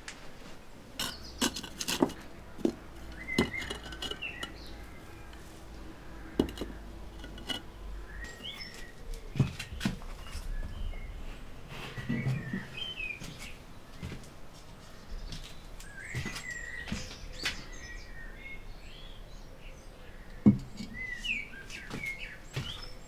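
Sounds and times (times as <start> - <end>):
small birds chirping: 1.0 - 23.0
knocks and clicks of equipment: 1.5 - 4.6, 6.4 - 7.6.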